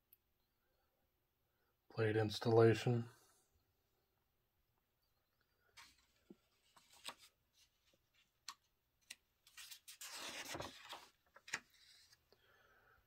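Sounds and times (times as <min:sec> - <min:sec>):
page turning: 0:05.8 - 0:12.2.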